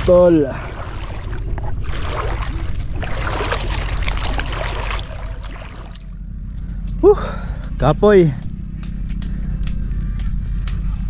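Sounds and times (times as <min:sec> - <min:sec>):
seawater sloshing and splashing: 0:00.0 - 0:06.2
low rumble: 0:00.0 - 0:11.0.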